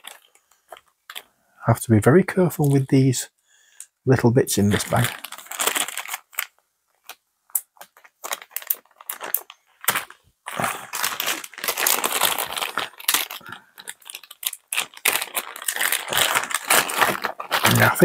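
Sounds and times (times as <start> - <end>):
plastic bag crinkling: 0.0 - 1.3, 4.6 - 18.0.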